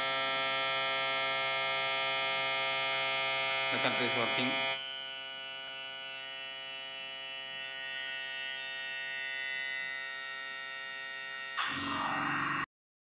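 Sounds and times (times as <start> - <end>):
cutter buzzing: 2.4 - 12.7
louder noisy sound: 11.6 - 12.7.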